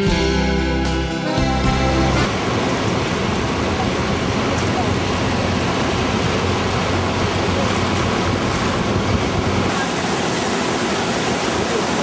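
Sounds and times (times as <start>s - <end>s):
waterfall rushing: 2.0s - 8.2s, 9.6s - 12.0s.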